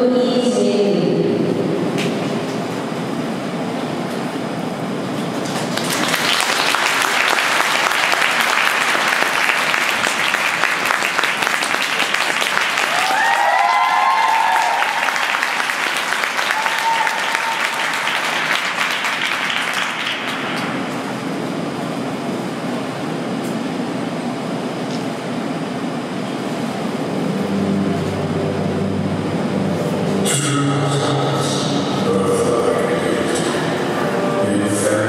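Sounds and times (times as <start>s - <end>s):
audience applauding: 5.3s - 20.9s
high-pitched cheering shouts: 12.8s - 15.7s, 16.4s - 18.1s.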